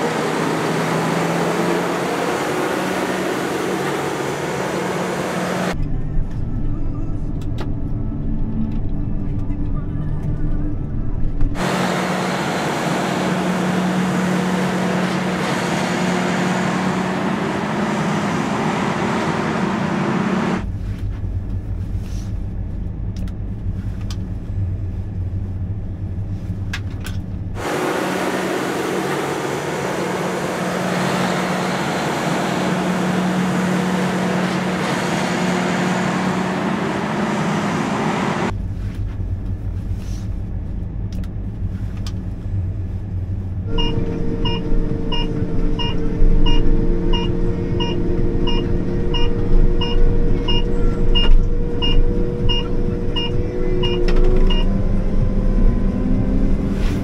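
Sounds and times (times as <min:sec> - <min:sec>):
combine harvester engine drone: 0:00.0 - 0:57.0
hissing machine noise: 0:27.6 - 0:38.5
electronic beeps: 0:43.8 - 0:54.7.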